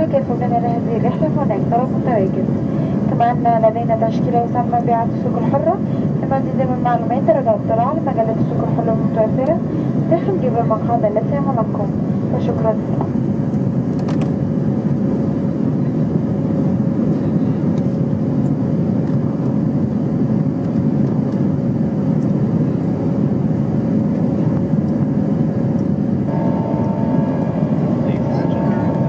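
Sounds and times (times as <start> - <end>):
airplane cabin engine rumble: 0.0 - 29.0
faint steady hum: 25.6 - 29.0
high steady tone: 26.3 - 29.0.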